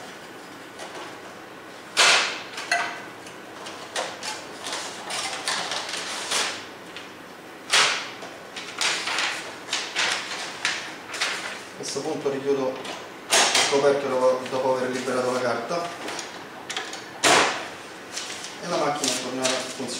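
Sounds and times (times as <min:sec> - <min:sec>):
copier plastic clacks and rattles: 0:03.6 - 0:06.2, 0:18.8 - 0:19.9
paper rustling: 0:18.1 - 0:19.9.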